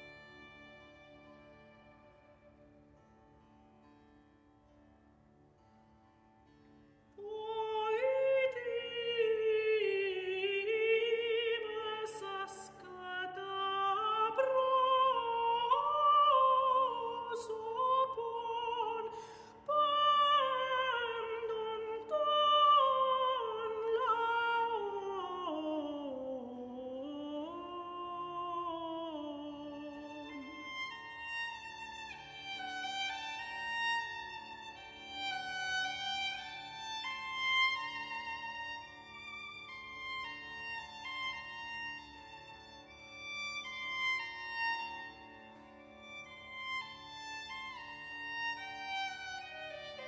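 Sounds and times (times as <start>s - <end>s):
soprano singing with vibrato: 7.2s - 30.8s.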